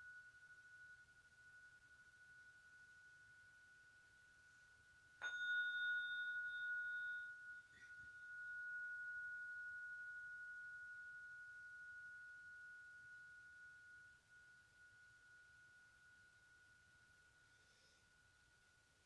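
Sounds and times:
tuning fork ringing: 0.0 - 19.0.

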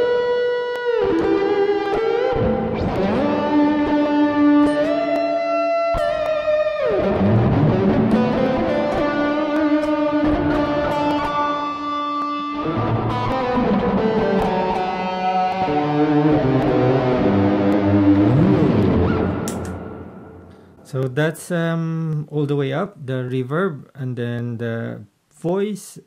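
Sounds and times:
overdriven electric guitar lead: 0.0 - 20.8.

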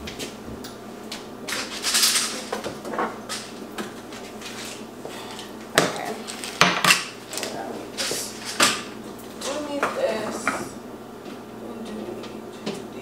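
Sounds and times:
items knocking and clattering: 1.5 - 4.8, 5.7 - 10.7.

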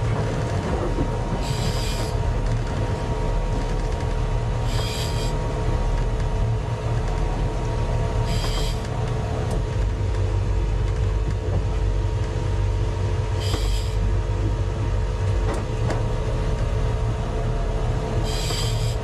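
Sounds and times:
boat engine running: 0.0 - 19.0.

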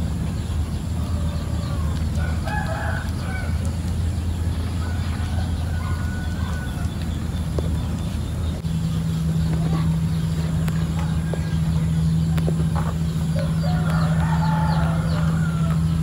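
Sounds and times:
steady low hum: 0.0 - 16.0
rooster crowing: 1.0 - 3.7, 4.8 - 7.0, 13.3 - 16.0.

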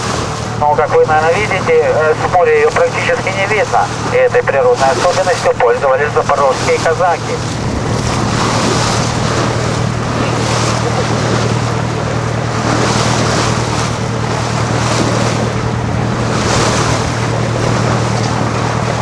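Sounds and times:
boat engine humming: 0.0 - 19.0
water washing past hull: 0.0 - 19.0
wind on microphone: 7.4 - 11.8.

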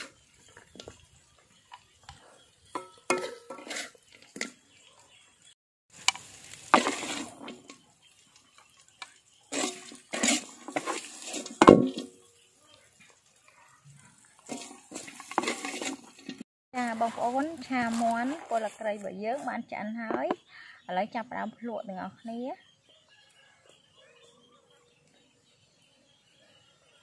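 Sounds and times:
metal spatula scraping wok: 2.7 - 4.6, 6.1 - 7.8, 9.4 - 12.2, 14.4 - 18.6.

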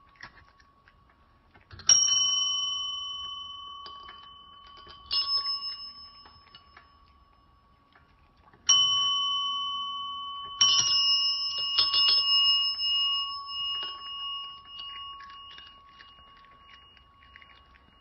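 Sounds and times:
light taps and clinks: 0.0 - 18.0.

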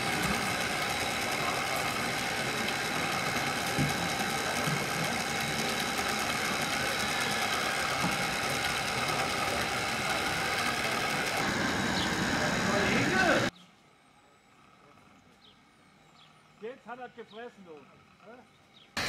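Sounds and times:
model loader motors whining: 0.0 - 19.0.

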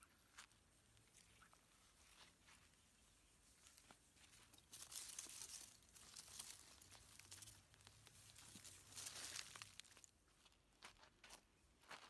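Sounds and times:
leafy plants rustling and tearing: 4.3 - 10.1.

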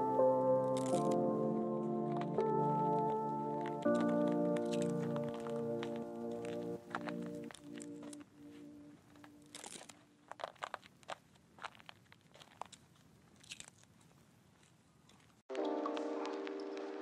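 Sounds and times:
background music: 0.0 - 9.6, 15.5 - 17.0
faint clicks and crackles: 0.0 - 17.0.

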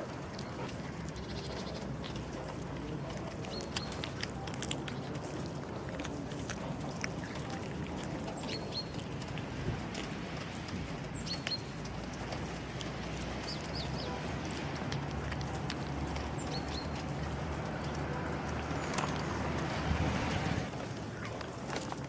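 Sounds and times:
cat chewing and lapping food: 0.0 - 22.0
bird chirping: 8.3 - 9.0, 11.0 - 11.8, 16.1 - 17.1.

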